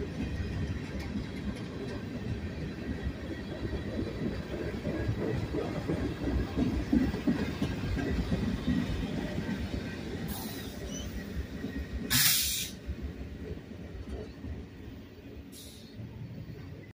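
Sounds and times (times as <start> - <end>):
freight train running past: 0.0 - 16.9
burst of hiss: 12.1 - 12.8, 15.6 - 16.0.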